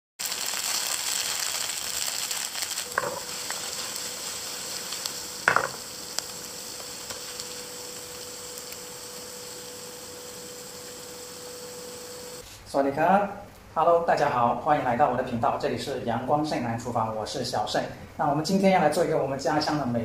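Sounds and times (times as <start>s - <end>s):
corn cakes sizzling in oil: 0.2s - 12.4s.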